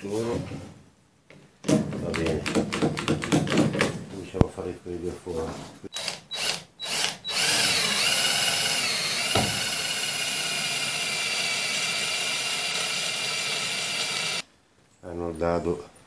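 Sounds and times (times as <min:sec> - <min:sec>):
cordless drill boring through metal: 0:05.9 - 0:14.4.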